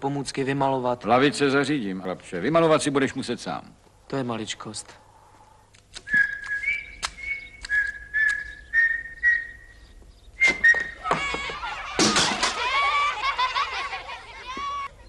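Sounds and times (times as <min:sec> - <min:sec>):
man whistling a tune: 0:06.1 - 0:09.8, 0:10.4 - 0:11.0.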